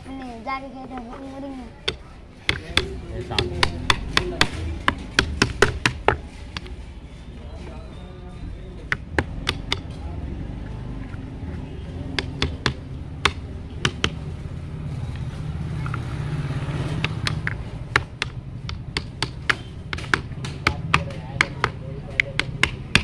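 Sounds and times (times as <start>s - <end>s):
metallic taps and knocks: 1.8s - 6.8s, 8.8s - 10.0s, 12.1s - 14.3s, 16.8s - 23.0s.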